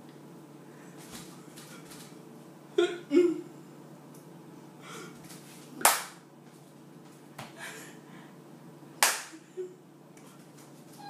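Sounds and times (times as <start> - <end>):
sharp hand claps: 5.8 - 6.2, 9.0 - 9.4.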